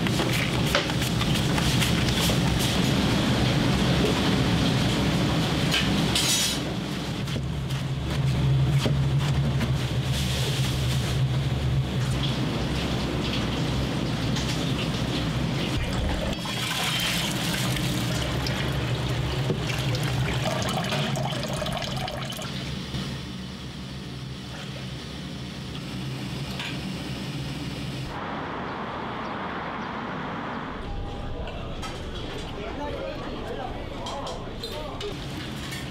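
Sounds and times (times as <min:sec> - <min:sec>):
outdoor background sound: 0:00.0 - 0:35.9
water pouring into metal pot: 0:15.8 - 0:22.6.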